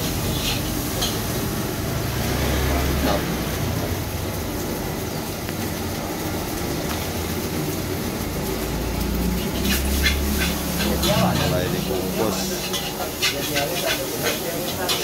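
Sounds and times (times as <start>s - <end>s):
spatula clinking in a wok: 12.5s - 15.0s.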